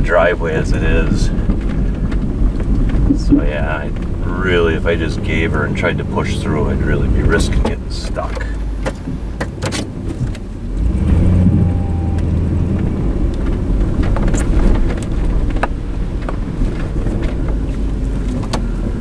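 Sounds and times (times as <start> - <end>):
suv engine running under load: 0.0 - 19.0.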